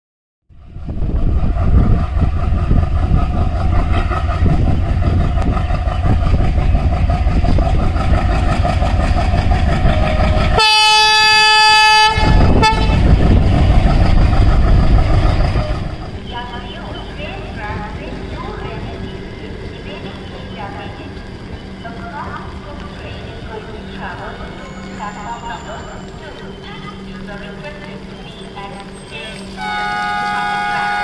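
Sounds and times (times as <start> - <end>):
diesel locomotive engine: 0.5 - 31.0
train horn: 9.8 - 13.2, 29.5 - 31.0.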